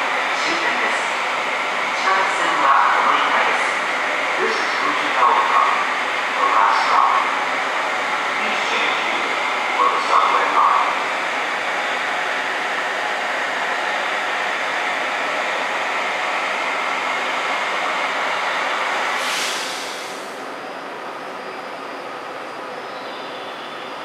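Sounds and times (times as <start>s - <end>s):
loud whooshing blower noise: 19.0s - 20.5s.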